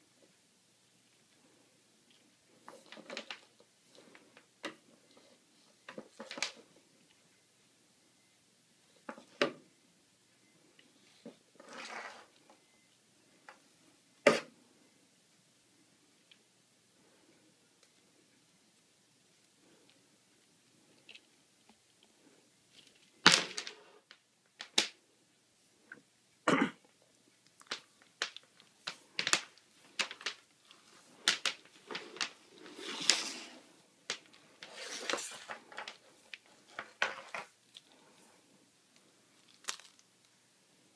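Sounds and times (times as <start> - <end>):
cable rustling: 1.2 - 7.2, 19.3 - 25.0, 27.2 - 40.9.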